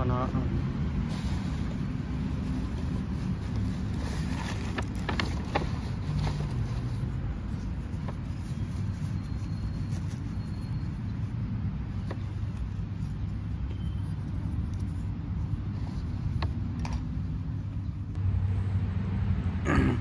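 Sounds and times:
paper towel and plastic bag crackling: 1.8 - 11.0.

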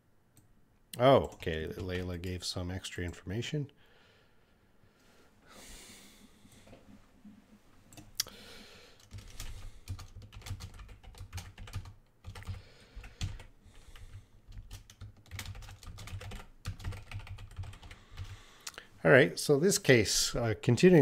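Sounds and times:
keyboard typing: 9.0 - 18.4.

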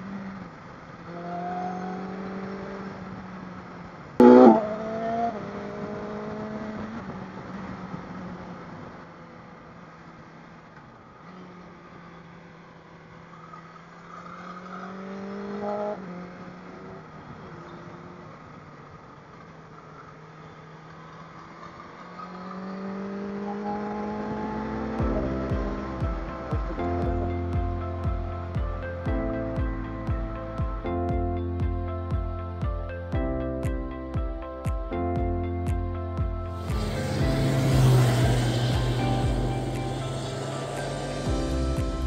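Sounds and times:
motorcycle engine running: 24.4 - 32.8, 34.2 - 42.0
wind rushing: 36.6 - 42.0.

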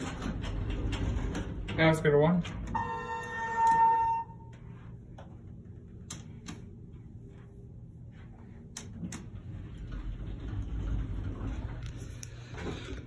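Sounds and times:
elevator door clicks: 0.0 - 4.3
elevator hum: 0.0 - 13.0.

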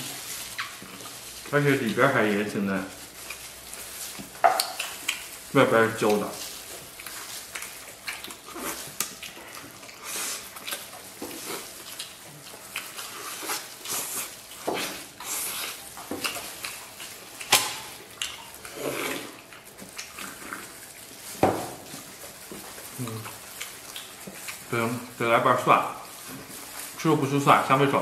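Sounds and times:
wet chewing and lip-smacking: 0.4 - 1.3, 3.1 - 21.3, 21.9 - 24.7.

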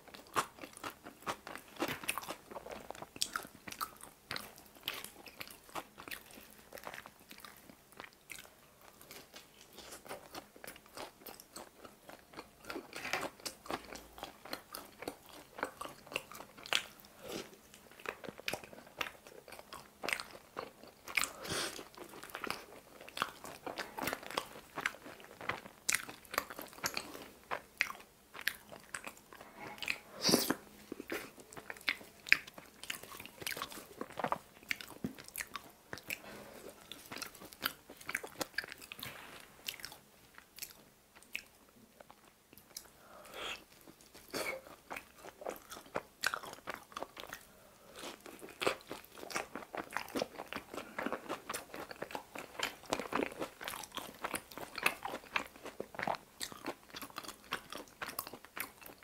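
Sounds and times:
wet chewing clicks: 48.1 - 59.0.

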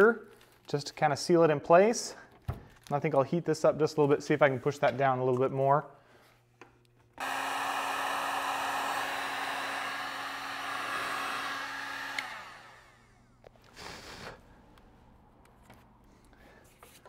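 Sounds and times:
heat gun blowing: 7.2 - 14.4
heat gun switch click: 12.0 - 12.4.

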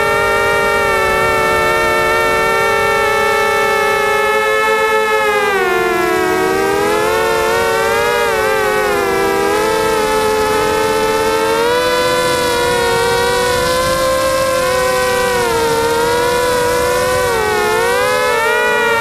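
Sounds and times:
quadcopter propellers whining: 0.0 - 19.0.

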